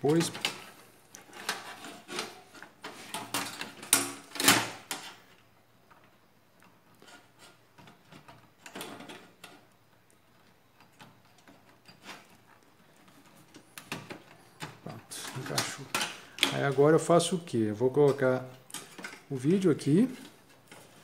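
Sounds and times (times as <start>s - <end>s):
handling noise: 0.0s - 21.0s
metal clicks and rattles: 18.0s - 19.4s.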